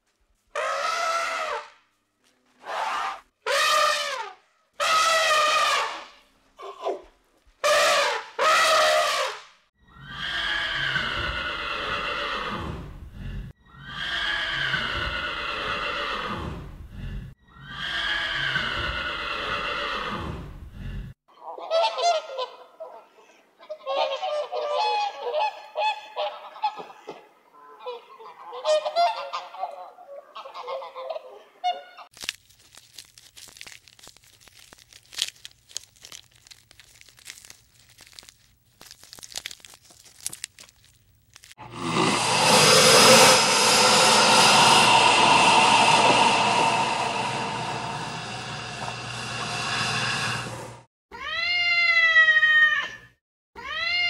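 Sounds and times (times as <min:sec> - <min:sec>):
low hum: 0:41.6 - 0:50.9.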